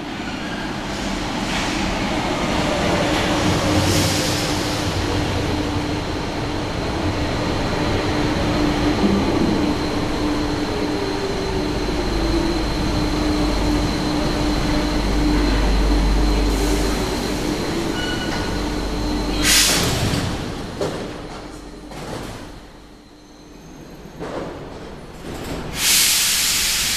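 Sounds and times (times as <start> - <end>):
metro train braking to a stop: 0.0 - 26.9
hissing air burst: 25.8 - 26.9.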